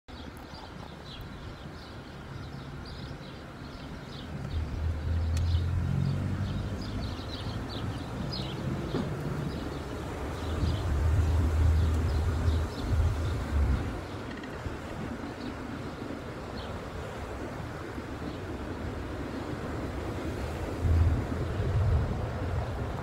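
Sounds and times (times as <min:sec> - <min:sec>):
birds chirping: 0:00.1 - 0:23.0
car wind and road noise: 0:00.1 - 0:23.0.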